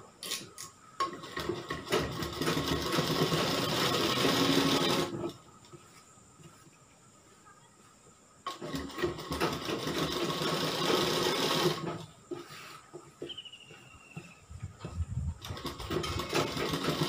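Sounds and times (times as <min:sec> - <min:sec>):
sewing machine stitching: 0:01.0 - 0:05.4, 0:08.5 - 0:12.1, 0:15.4 - 0:17.0.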